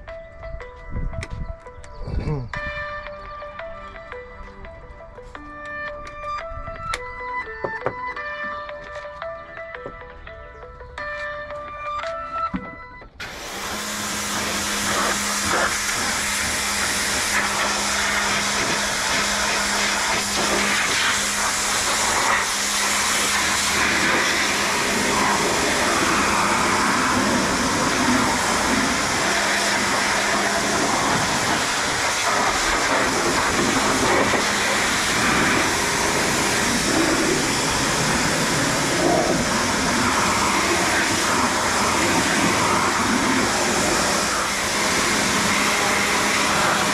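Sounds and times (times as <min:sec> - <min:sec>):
pressure washer spraying water: 0:13.2 - 0:46.9
spray splashing off metal: 0:13.2 - 0:46.9.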